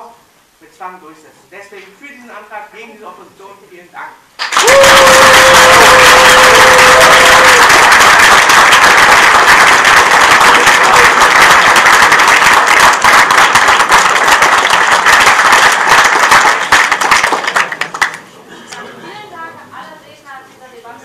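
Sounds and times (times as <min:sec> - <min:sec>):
audience applauding: 0:04.4 - 0:18.4.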